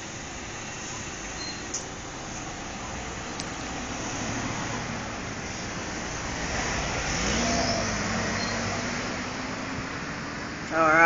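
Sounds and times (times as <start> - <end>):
bus engine running: 0.0 - 11.0
tyre noise on road: 0.0 - 11.0
car driving past: 3.6 - 10.3.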